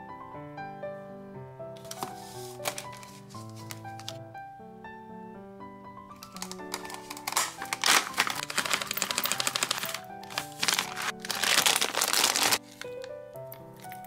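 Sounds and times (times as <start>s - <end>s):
background music: 0.0s - 14.0s
plastic bags crinkling: 2.6s - 4.2s, 6.2s - 13.1s
seeds pouring: 6.3s - 13.1s.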